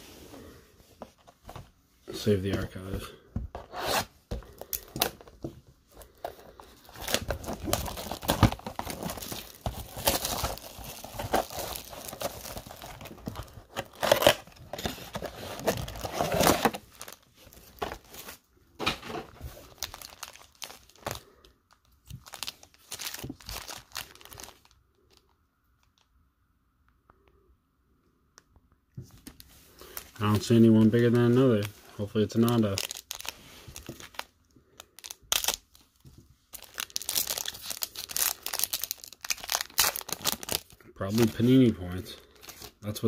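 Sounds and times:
foil packs rustling and clicking: 6.0s - 21.3s, 35.0s - 41.5s
plastic shrink-wrap tearing: 6.8s - 17.2s, 19.6s - 21.3s, 32.2s - 35.9s, 36.5s - 41.5s.

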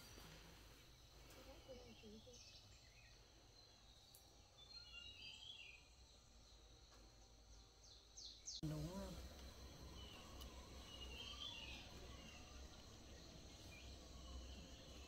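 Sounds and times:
low steady hum: 0.0s - 15.0s
faint high chirps: 8.6s - 15.0s.

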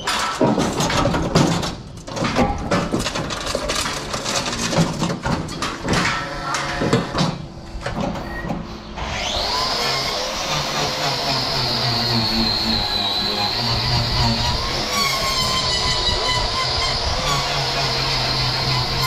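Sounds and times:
knocks and clattering in metal chute: 0.0s - 8.7s.

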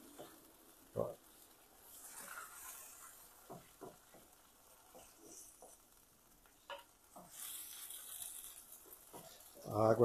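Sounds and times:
light sizzle: 0.0s - 10.0s
spatula scraping a frying pan: 1.3s - 9.8s.

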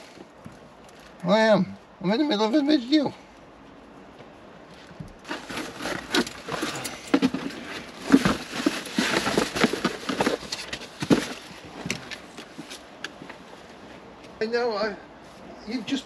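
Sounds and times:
rustling of handling things: 3.3s - 14.4s.

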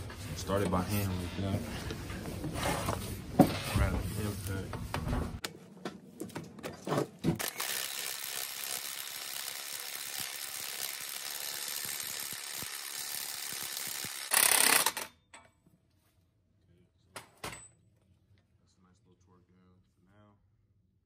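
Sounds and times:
power tool driving bolts: 7.2s - 15.4s.

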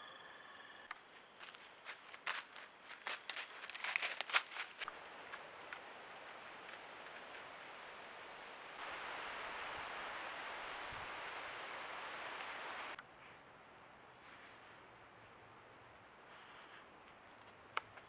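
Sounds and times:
faint high electronic whine: 0.0s - 1.7s
steady microphone hiss: 4.8s - 18.0s.

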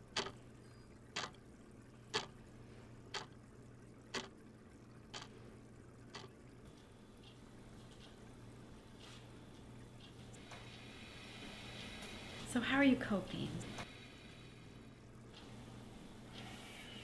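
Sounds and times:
clock ticking: 0.0s - 0.4s, 1.2s - 1.4s, 2.1s - 2.4s, 3.1s - 3.4s, 4.1s - 4.3s, 5.1s - 5.3s, 6.1s - 6.3s
faint low hum: 0.0s - 17.0s.

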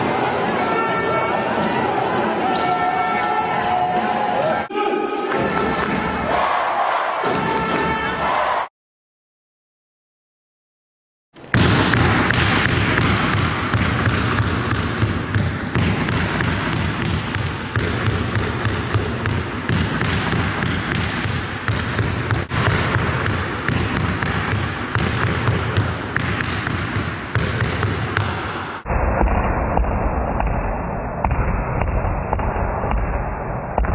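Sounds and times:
basketballs bouncing on gym floor: 11.5s - 33.2s.

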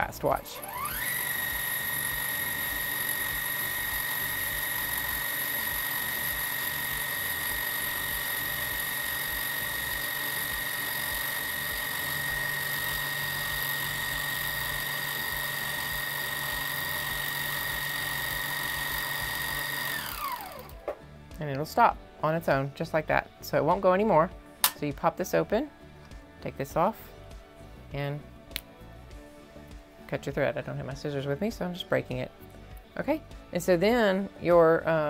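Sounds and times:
sewing machine bobbin winder whine: 0.6s - 20.9s.

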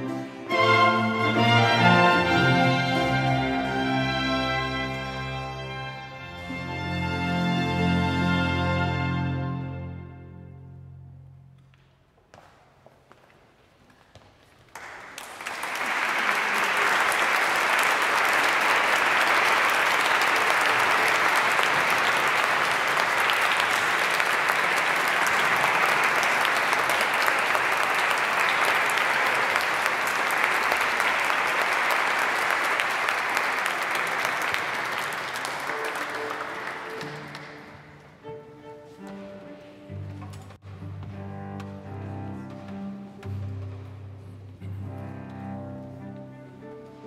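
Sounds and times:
audience applauding: 14.6s - 38.1s.

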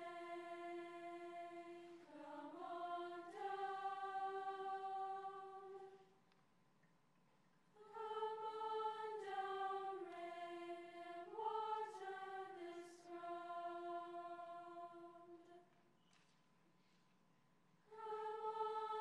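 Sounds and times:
girls choir singing: 0.0s - 6.1s, 7.8s - 15.6s, 17.9s - 19.0s.

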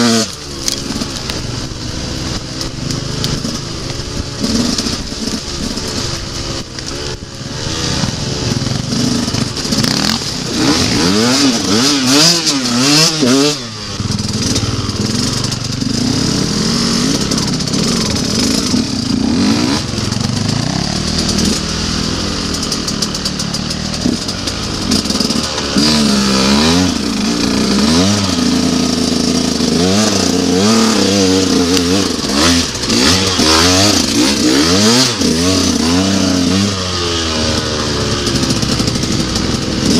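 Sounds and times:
dirt bike engine revving: 0.0s - 39.9s.

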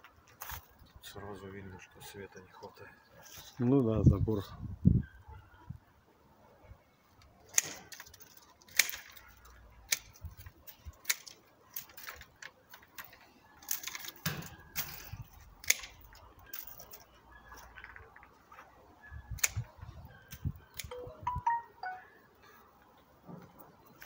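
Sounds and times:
pruning shears snipping branches: 7.5s - 12.9s, 13.6s - 17.1s, 19.4s - 20.9s.

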